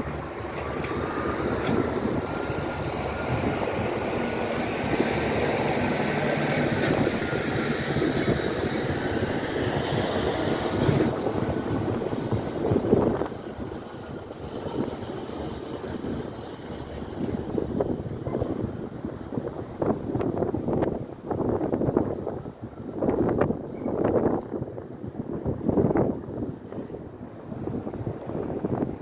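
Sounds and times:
truck passing close: 0.0s - 20.1s
traffic rumble: 0.0s - 29.0s.

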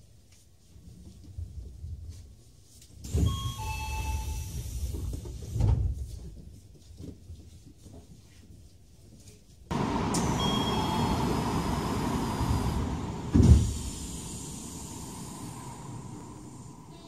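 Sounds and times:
compressed air hiss: 11.2s - 17.0s
heavy thud: 13.2s - 13.9s.

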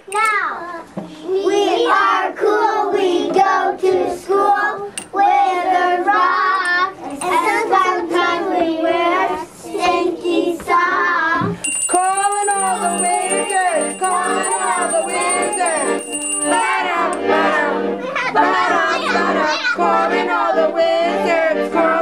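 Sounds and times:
young children singing: 1.4s - 11.6s, 16.5s - 22.0s.

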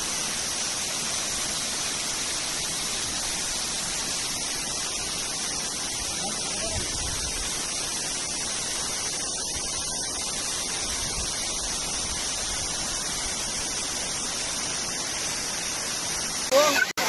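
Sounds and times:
waterfall rushing: 0.0s - 17.0s.

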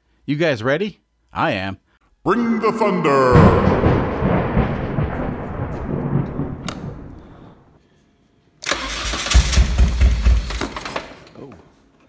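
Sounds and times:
thunder rumble: 3.3s - 7.8s
car engine cranking: 8.7s - 11.1s.

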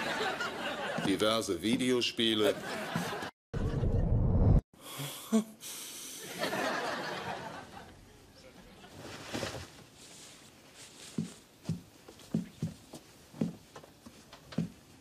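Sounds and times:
audience laughter: 0.0s - 1.2s, 2.4s - 3.8s, 6.2s - 8.0s
bedclothes rustling: 8.8s - 15.0s.

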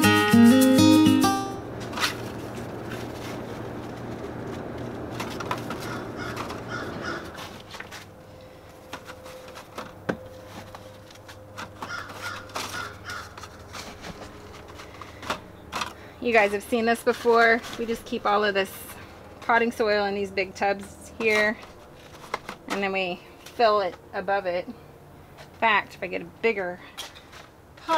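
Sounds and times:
birds cawing: 5.8s - 7.5s, 11.8s - 13.5s.

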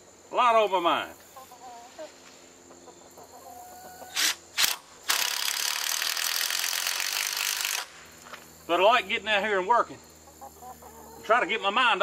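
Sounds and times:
chickens clucking: 0.7s - 4.5s, 8.1s - 12.0s.

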